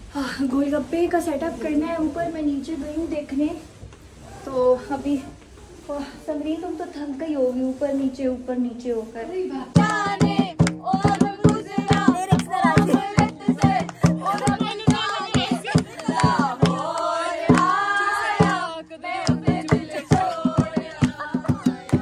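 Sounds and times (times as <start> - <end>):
person singing: 9.8 - 17.0
dholak drum beat: 9.8 - 22.0.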